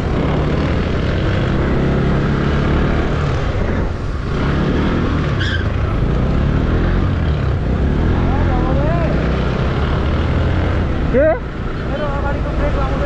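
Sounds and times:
road and wind noise: 0:00.0 - 0:13.0.

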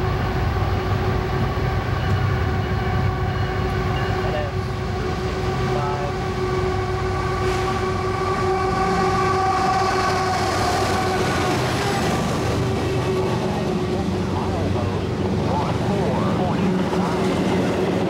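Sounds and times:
locomotive engine and wheels rumble: 0:00.0 - 0:18.0
train horn chord: 0:05.5 - 0:11.7.

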